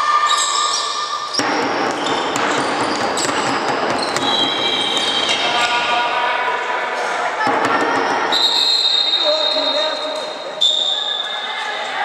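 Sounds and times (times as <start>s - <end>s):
handball game in echoing hall: 0.0s - 12.0s
ball bouncing on wooden floor: 1.4s - 5.8s.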